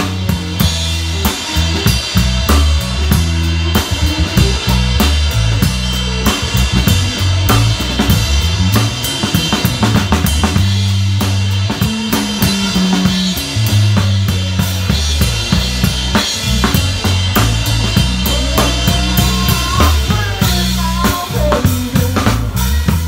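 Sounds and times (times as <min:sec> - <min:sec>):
bass guitar held notes: 0:00.0 - 0:23.0
drum kit kick and snare: 0:00.0 - 0:23.0.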